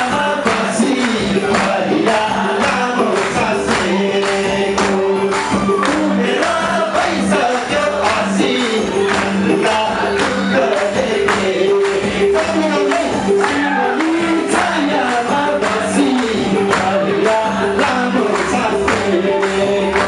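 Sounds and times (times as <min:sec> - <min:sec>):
amplified band backing: 0:00.0 - 0:20.0
man singing into microphone: 0:00.0 - 0:20.0
percussion beat: 0:00.0 - 0:20.0.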